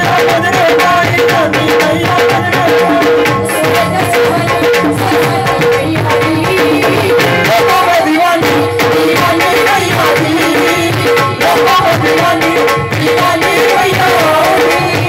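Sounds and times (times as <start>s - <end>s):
hand drum rhythm: 0.0s - 15.0s
woman singing into a microphone: 0.0s - 15.0s.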